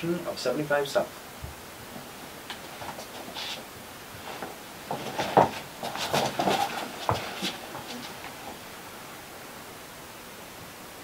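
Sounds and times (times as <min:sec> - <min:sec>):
clothing rustle: 0:01.9 - 0:08.8
chair knocks: 0:04.4 - 0:08.4.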